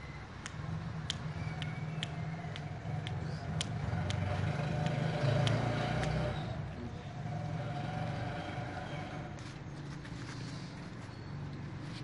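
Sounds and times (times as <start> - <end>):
engine hum: 0.0 - 12.0.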